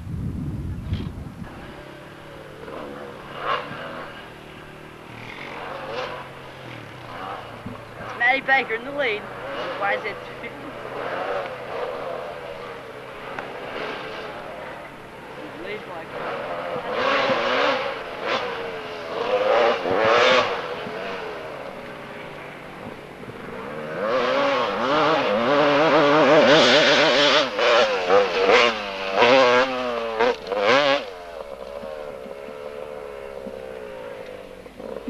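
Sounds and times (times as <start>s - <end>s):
motorcycle engine revving hard: 0.1s - 35.0s.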